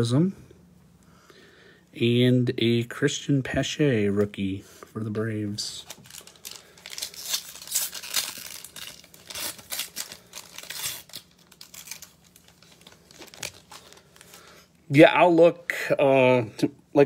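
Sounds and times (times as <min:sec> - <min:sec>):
cards rustling: 0:05.6 - 0:14.7
foil wrapper tearing and crinkling: 0:05.8 - 0:14.5.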